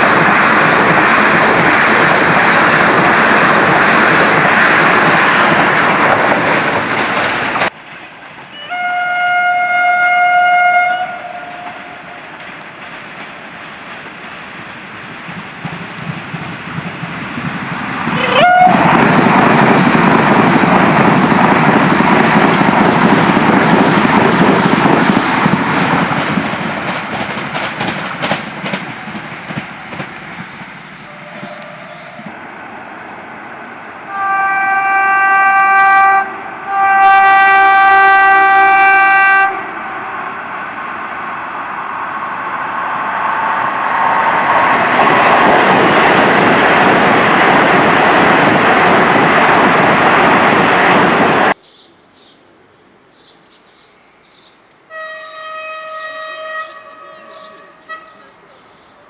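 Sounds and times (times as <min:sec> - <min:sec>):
train wheels rumbling on rails: 0:00.0 - 0:51.6
train horn blast: 0:08.5 - 0:12.2, 0:18.1 - 0:19.0, 0:31.1 - 0:32.2, 0:34.1 - 0:40.2, 0:54.9 - 0:58.5.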